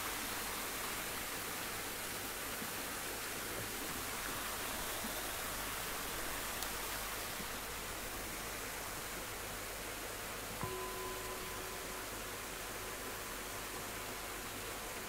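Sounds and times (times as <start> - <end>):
steady hiss: 0.0 - 15.0
faint tick: 6.6 - 6.8.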